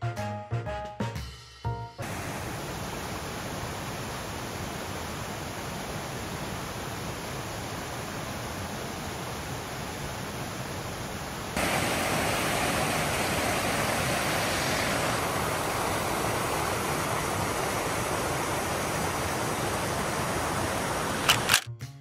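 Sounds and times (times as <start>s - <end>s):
waterfall rushing: 2.0s - 21.6s.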